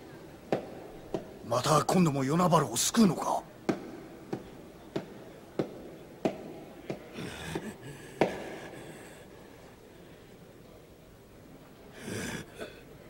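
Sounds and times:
sharp evenly spaced knocks: 0:03.6 - 0:08.8.

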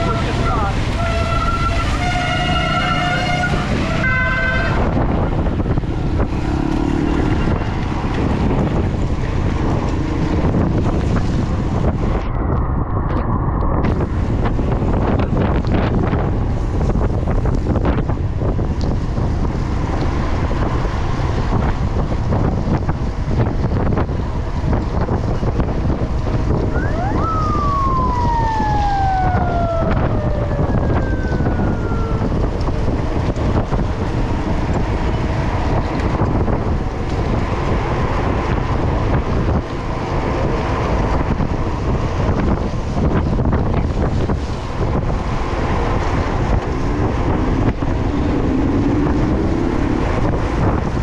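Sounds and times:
wind buffeting microphone: 0:00.0 - 0:51.0
high tone gliding down: 0:26.6 - 0:33.3.

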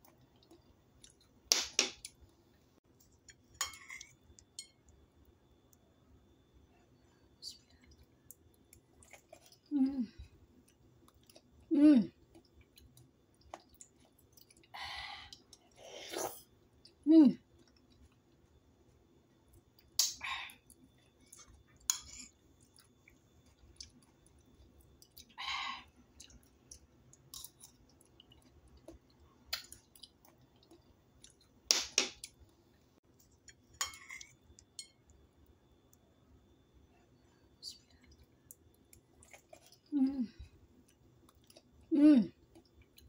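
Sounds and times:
chewing noises: 0:20.6 - 0:25.4, 0:37.7 - 0:40.0.

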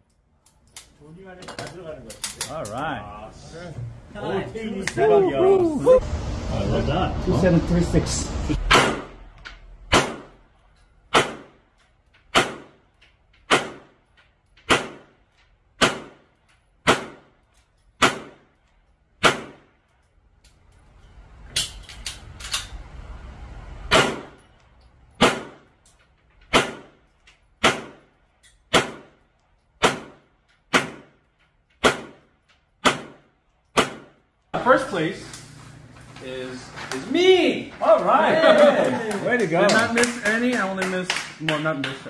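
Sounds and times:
pistol shots: 0:08.7 - 0:09.2, 0:09.9 - 0:10.4, 0:11.1 - 0:11.6, 0:12.3 - 0:12.8, 0:13.5 - 0:14.0, 0:14.6 - 0:15.2, 0:15.8 - 0:17.4, 0:18.0 - 0:18.5, 0:19.2 - 0:19.7, 0:23.9 - 0:24.4, 0:25.2 - 0:25.7, 0:26.5 - 0:27.0, 0:27.6 - 0:28.1, 0:28.7 - 0:29.2, 0:29.8 - 0:31.2, 0:31.8 - 0:34.2.

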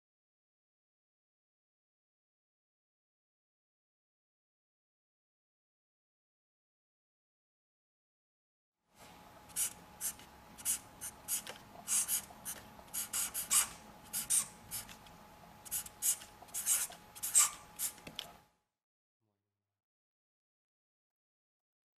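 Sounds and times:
marker pen scratching: 0:09.5 - 0:15.0, 0:15.7 - 0:18.1.

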